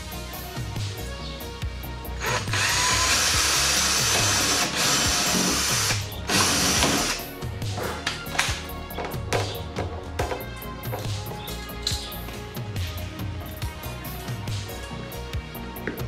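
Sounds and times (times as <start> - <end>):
cordless drill on fibreglass: 2.2 - 7.3
music beat: 2.2 - 16.0.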